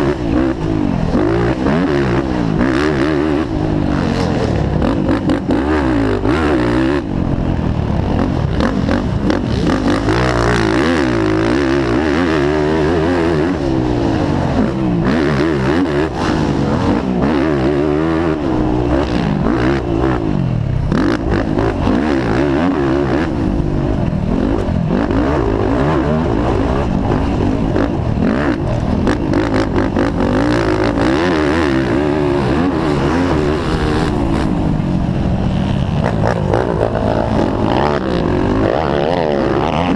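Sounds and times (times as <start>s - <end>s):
quad engine revving: 0.0s - 39.9s.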